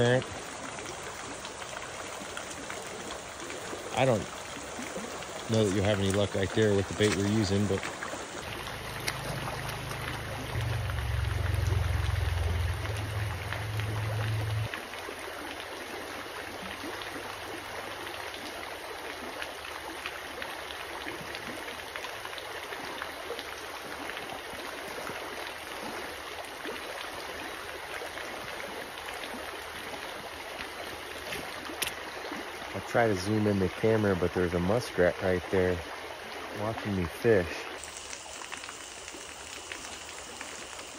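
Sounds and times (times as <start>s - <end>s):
creek water rushing over stones: 0.0s - 40.9s
low rumble: 8.5s - 14.7s.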